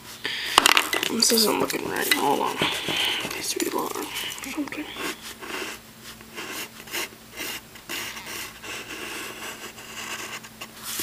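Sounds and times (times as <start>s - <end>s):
pencil scratching on paper: 1.2s - 11.0s.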